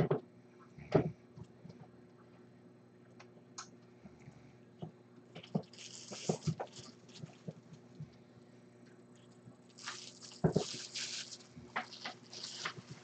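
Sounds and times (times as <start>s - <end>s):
plastic bag crinkling: 5.4s - 8.1s, 9.1s - 13.0s.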